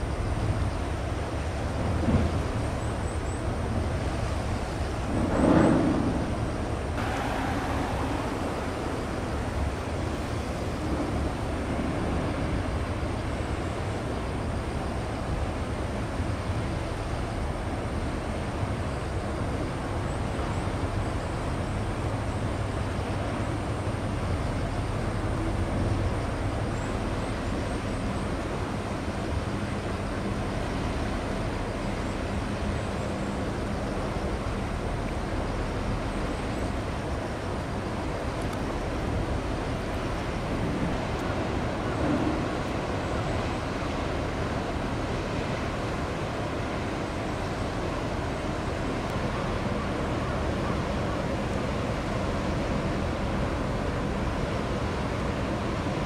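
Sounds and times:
outdoor noise: 0:00.0 - 0:56.0
distant engines rumbling: 0:04.9 - 0:12.2.

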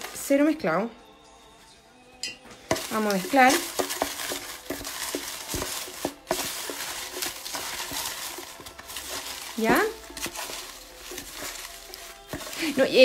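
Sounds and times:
paper slips rustling: 0:02.7 - 0:13.0.

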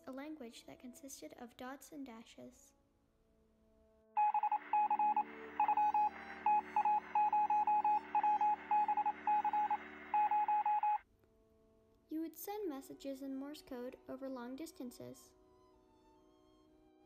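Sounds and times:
morse code beeping: 0:04.2 - 0:11.0.

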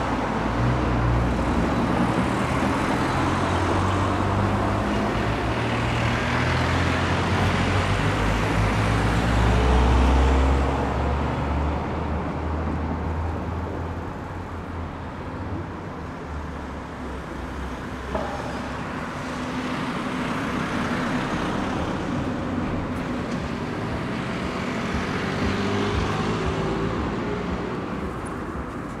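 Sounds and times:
car engines and tyre noise: 0:00.0 - 0:29.0
sharp knock: 0:18.1 - 0:18.8.

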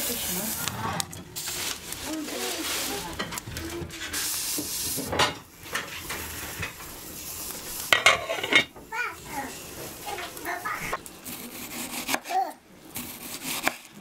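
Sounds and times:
fruit sizzling in frying pan: 0:00.0 - 0:14.0
metal lid clattering on pan: 0:07.9 - 0:08.8.

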